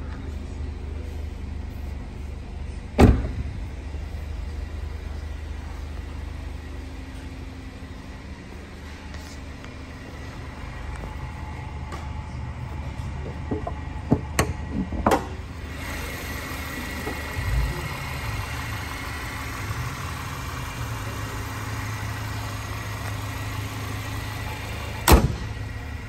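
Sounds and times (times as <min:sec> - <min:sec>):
car engine idling: 0:00.0 - 0:26.0
car hood slamming shut: 0:03.0 - 0:03.6, 0:25.0 - 0:25.6.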